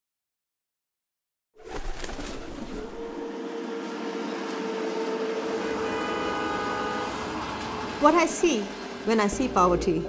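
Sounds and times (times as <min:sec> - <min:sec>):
city traffic hiss and rumble: 0:03.4 - 0:10.0.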